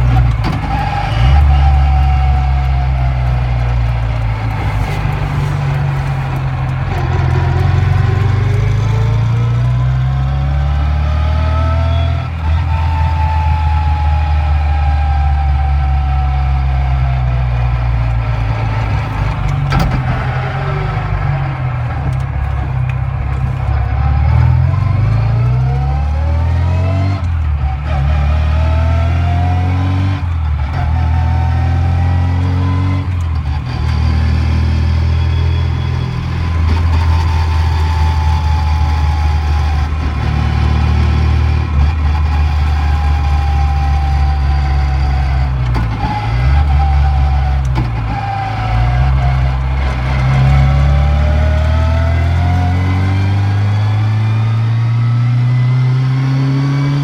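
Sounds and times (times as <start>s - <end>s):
car engine accelerating: 0.0s - 57.0s
gearbox whine: 0.0s - 57.0s.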